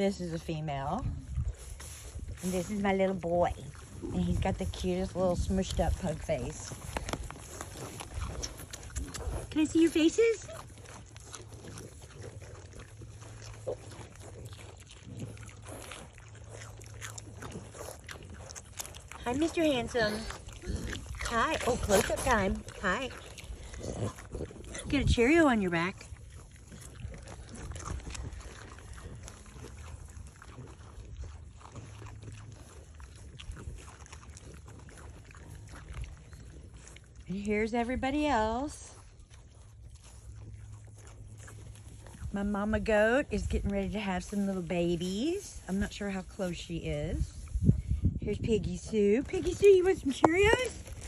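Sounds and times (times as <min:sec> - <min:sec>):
piglets crunching food: 0:00.0 - 0:51.0
pigs snuffling and chewing: 0:00.0 - 0:51.0
wind rumble on microphone: 0:00.1 - 0:09.6, 0:41.9 - 0:51.0
rustling hay: 0:00.2 - 0:23.4
rustling straw: 0:01.4 - 0:02.9
pig grunts: 0:07.4 - 0:37.2.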